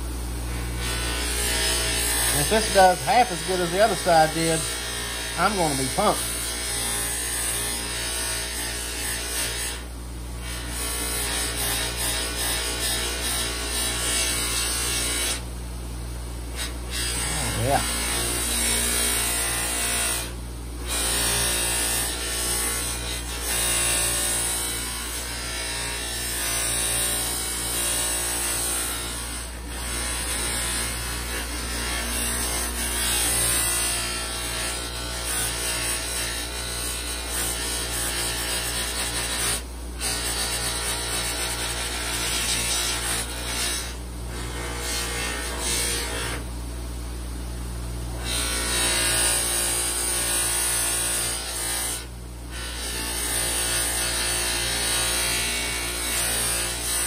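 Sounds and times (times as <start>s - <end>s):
bench buffer motor running: 0.0s - 9.7s, 16.5s - 46.4s.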